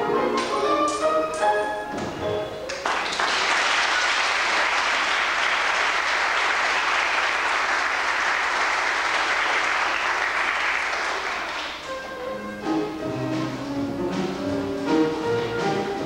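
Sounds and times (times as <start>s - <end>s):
recorded backing music: 0.0s - 3.2s, 11.6s - 16.0s
audience applause: 2.7s - 11.9s.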